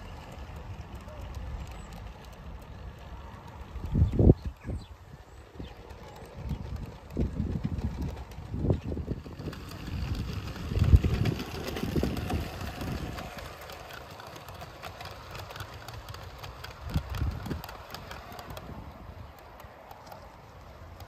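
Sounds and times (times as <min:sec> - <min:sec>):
model train wheels clicking: 0:00.0 - 0:21.0
wind buffeting microphone: 0:03.1 - 0:19.4.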